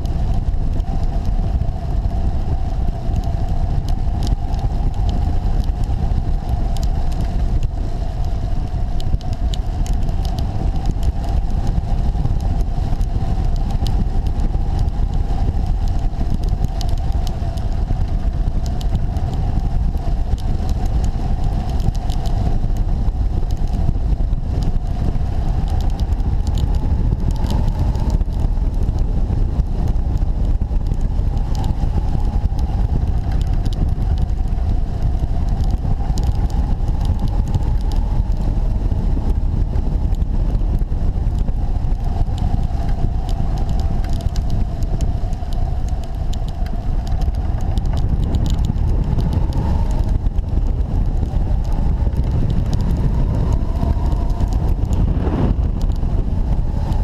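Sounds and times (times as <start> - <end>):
wind noise on microphone: 0.0 - 57.0.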